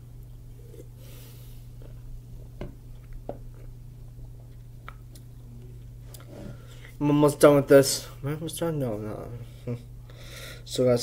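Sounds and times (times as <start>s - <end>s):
steady low hum: 0.0s - 11.0s
soft breath: 10.1s - 10.7s.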